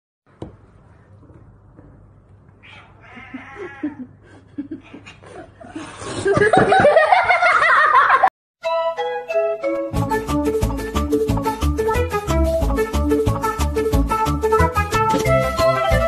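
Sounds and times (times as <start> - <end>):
cat yowling: 2.6 - 4.1.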